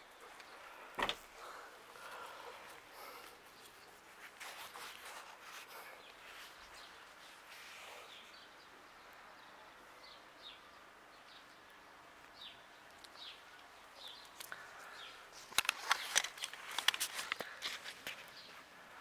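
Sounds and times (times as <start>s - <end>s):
bird chirping: 0.0s - 16.1s
sharp clicks and scuffs: 15.4s - 18.6s.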